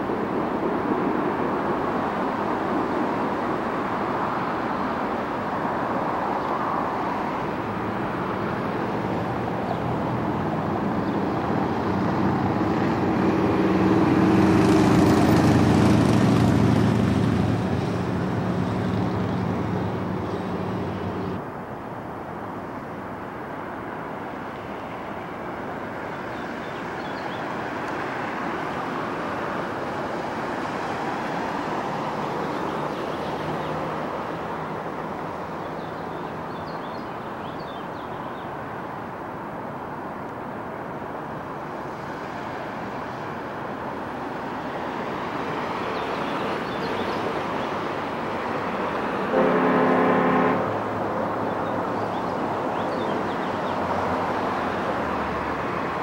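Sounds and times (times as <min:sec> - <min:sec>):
road noise: 0:00.0 - 0:56.0
vehicle engine hum: 0:05.6 - 0:21.6.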